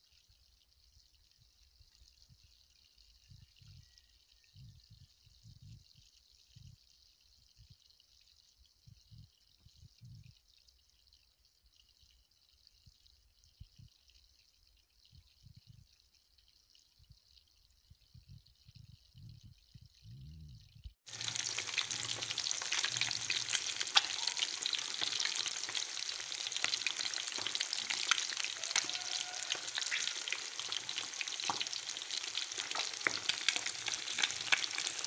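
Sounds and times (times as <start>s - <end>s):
fish sizzling in oil: 21.1s - 35.0s.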